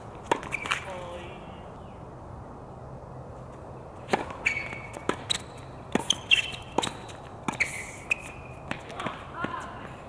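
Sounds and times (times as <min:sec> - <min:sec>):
tennis ball bouncing: 0:00.2 - 0:00.9, 0:04.0 - 0:10.0
racket hitting tennis ball: 0:00.2 - 0:01.0, 0:04.0 - 0:10.0
sneakers squeaking on court: 0:00.2 - 0:01.2, 0:04.0 - 0:09.7.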